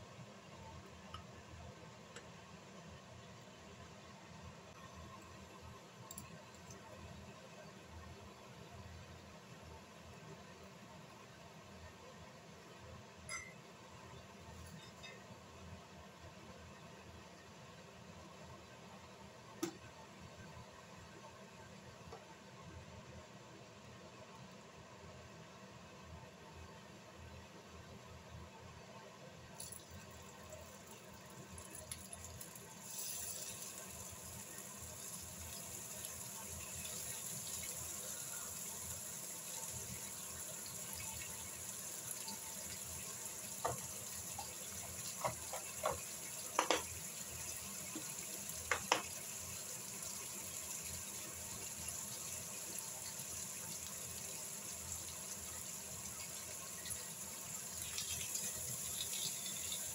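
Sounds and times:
oil popping and crackling: 29.6 - 34.1
bacon sizzling in a pan: 29.6 - 59.9.

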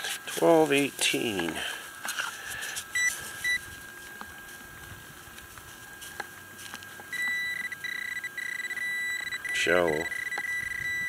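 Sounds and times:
steady high beep tone: 3.0 - 3.6, 7.1 - 11.0
pinpointer ticks: 7.2 - 11.0.

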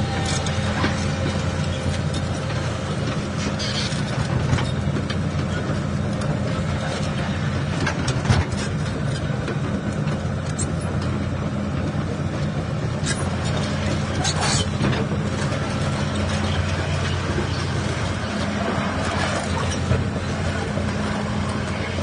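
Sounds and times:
model excavator motor drone: 8.6 - 22.0.

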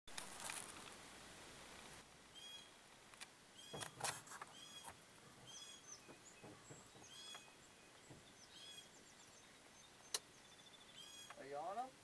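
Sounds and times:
bird chirping faintly: 2.3 - 2.8, 3.5 - 12.0
sharp clicks and knocks: 6.0 - 8.4.

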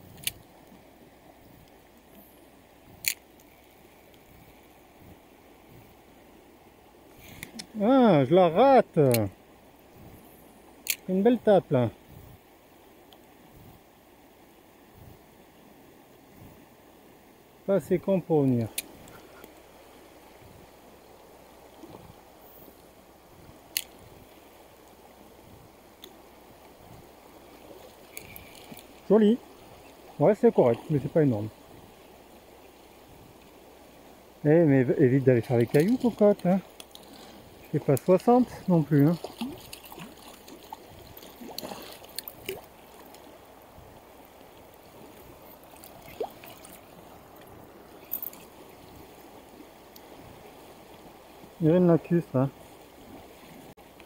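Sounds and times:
river current rushing: 0.0 - 54.0.

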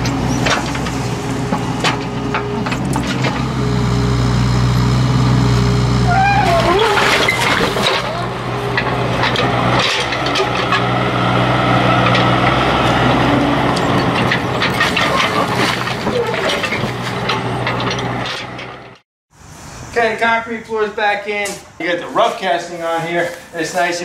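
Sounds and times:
soil and stones scraping: 0.0 - 3.8, 6.4 - 19.0
diesel engine running: 0.0 - 19.0.

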